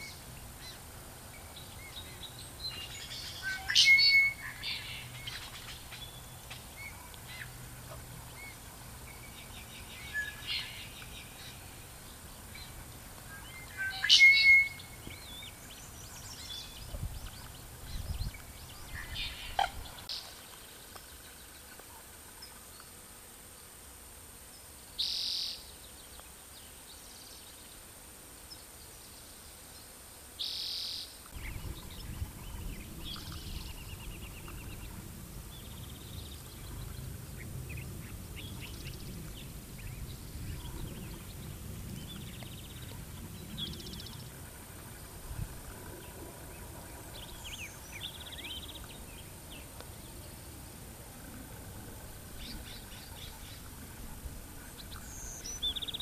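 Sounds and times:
bird calls and chirps: 0:00.0 - 0:21.6, 0:30.5 - 0:44.4, 0:52.3 - 0:56.0
faint high whine: 0:00.0 - 0:56.0.

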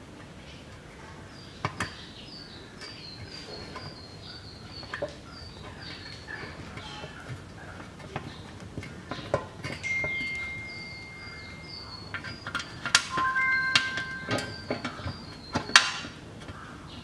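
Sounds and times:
steady whistle-like tones: 0:12.9 - 0:15.3.

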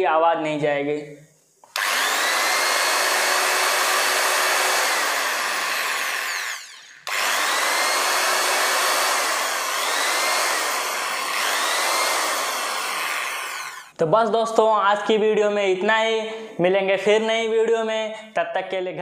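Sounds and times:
electric drill running: 0:01.7 - 0:14.0.

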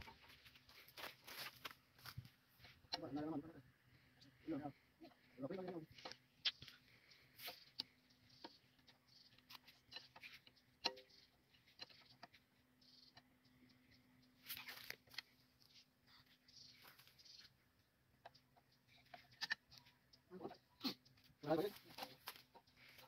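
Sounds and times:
tool clicks and taps on engine: 0:07.5 - 0:12.4.

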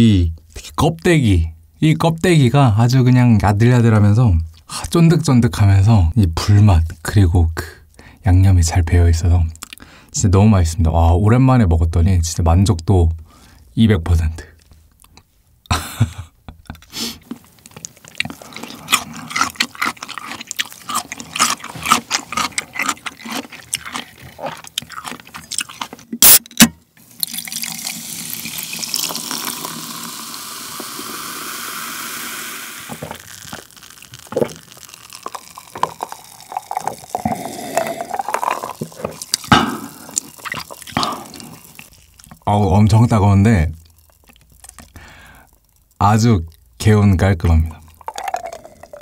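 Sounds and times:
person gulping drink: 0:15.0 - 0:26.4, 0:27.2 - 0:42.5, 0:43.6 - 0:46.8, 0:47.6 - 0:49.0
soda can snapped open: 0:26.2 - 0:26.8
cola fizzing over ice: 0:27.0 - 0:42.5, 0:43.8 - 0:46.0, 0:47.7 - 0:49.0
fizzing pops: 0:32.8 - 0:42.4.

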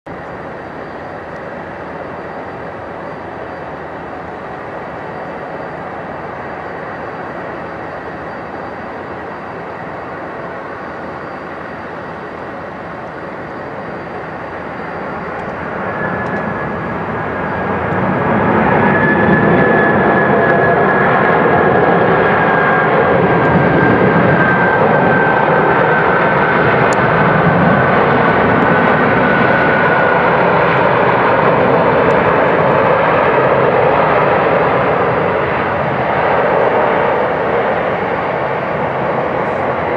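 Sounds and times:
faint high whine: 0:00.1 - 0:39.9
jet engines roaring: 0:00.1 - 0:39.9.

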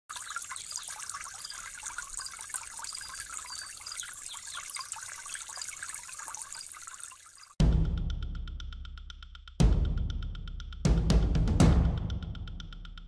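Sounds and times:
water trickling and bubbling: 0:00.0 - 0:07.6.

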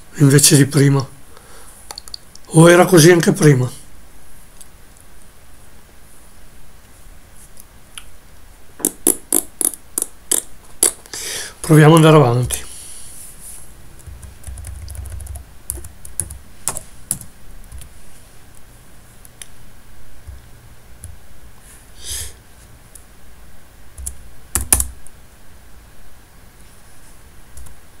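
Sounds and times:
typing on computer keyboard: 0:14.0 - 0:17.9, 0:24.0 - 0:25.0.

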